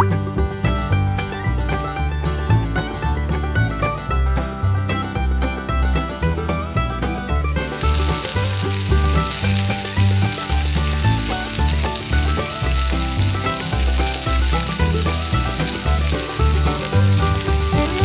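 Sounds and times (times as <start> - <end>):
music with pulsing bass: 0.0 - 18.0
hot oil sizzling: 5.7 - 18.0.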